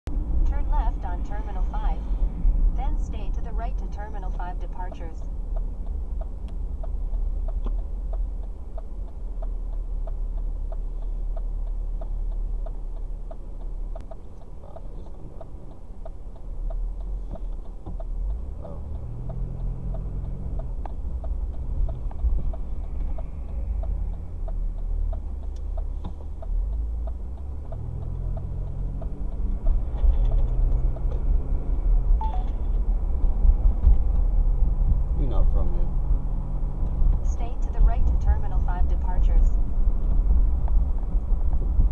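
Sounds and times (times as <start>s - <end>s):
road and engine rumble: 0.0s - 41.9s
light even ticking: 3.1s - 31.4s.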